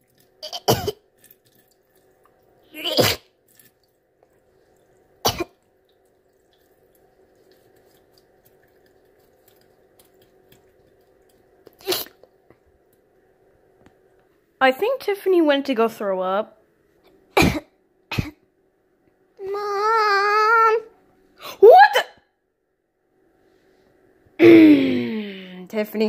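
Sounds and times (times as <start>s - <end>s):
girl making retching noises: 2.7s - 3.3s, 11.8s - 12.2s.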